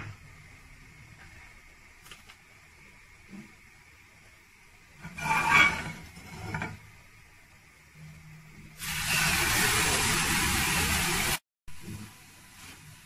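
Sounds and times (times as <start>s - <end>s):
batter sizzling in pan: 0.0s - 8.0s, 8.7s - 13.0s
utensil scraping frying pan: 5.0s - 6.8s.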